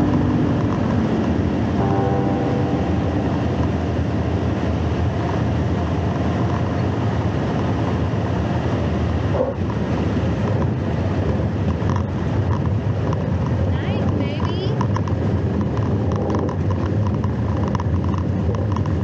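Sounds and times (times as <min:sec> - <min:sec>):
wind rushing past: 0:00.0 - 0:09.3
airplane engine and propeller drone: 0:00.0 - 0:19.0.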